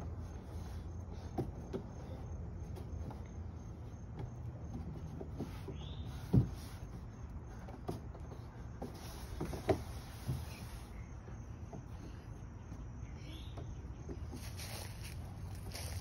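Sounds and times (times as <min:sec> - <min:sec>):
feet and hands on plastic slide: 0:00.0 - 0:12.3.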